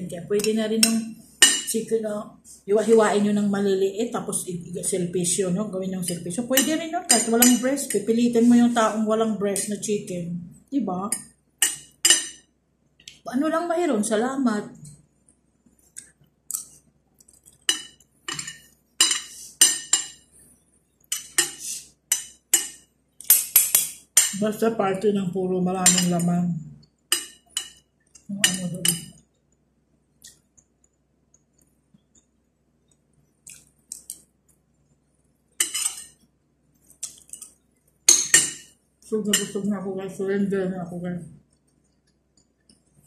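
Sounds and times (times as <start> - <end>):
cutlery clinking on plate: 17.7 - 20.2, 21.1 - 24.4, 35.6 - 36.2, 38.1 - 38.7.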